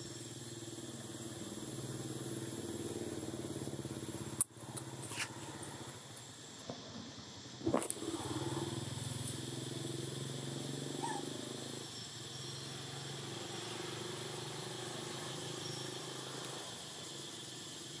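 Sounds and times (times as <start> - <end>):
faint chirp: 8.1 - 18.0.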